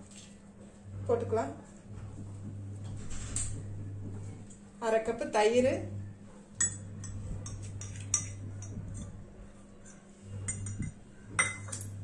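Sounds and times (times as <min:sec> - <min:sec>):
steady low hum: 0:00.0 - 0:12.0
metal cup and bowl clinking: 0:06.6 - 0:09.1, 0:09.8 - 0:12.0.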